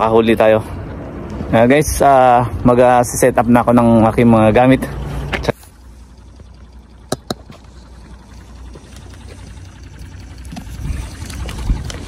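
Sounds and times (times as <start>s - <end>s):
sharp clicks: 6.3s - 12.0s
sea water lapping: 7.6s - 12.0s.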